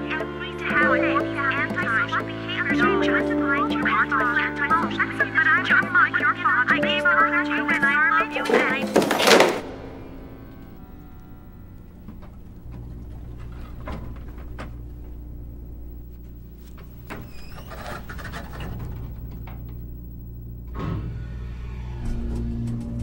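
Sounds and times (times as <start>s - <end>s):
elevator hum: 0.0s - 23.0s
brief squeak: 17.1s - 18.6s.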